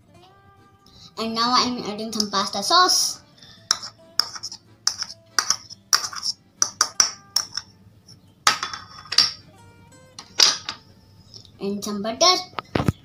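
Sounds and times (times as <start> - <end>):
metal spoon clinking on crockery: 3.7 - 7.7, 8.5 - 9.4, 10.2 - 10.8.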